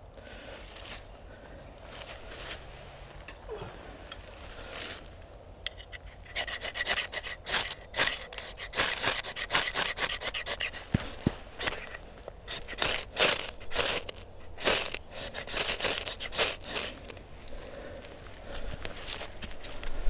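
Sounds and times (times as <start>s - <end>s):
rasping scraping strokes: 5.7s - 17.1s.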